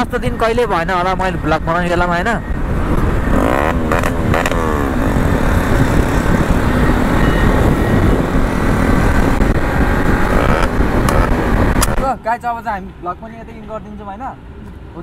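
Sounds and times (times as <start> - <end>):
wind rush on microphone: 0.0 - 12.1
motorcycle engine running: 2.9 - 12.0.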